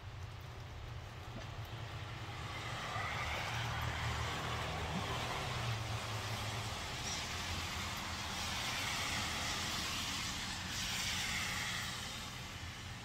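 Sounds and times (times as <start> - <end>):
road traffic rumble: 0.0 - 13.0
tyre hiss: 3.1 - 13.0.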